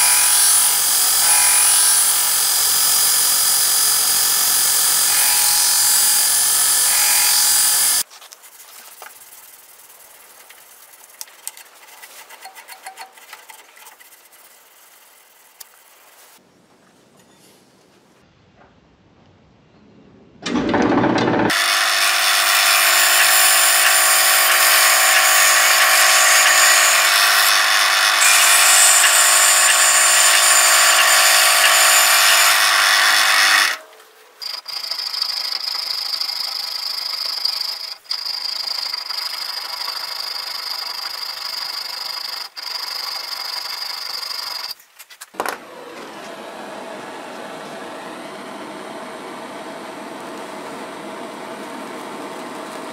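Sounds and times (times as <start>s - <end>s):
belt grinder grinding wood: 0.0s - 8.1s, 20.7s - 44.8s.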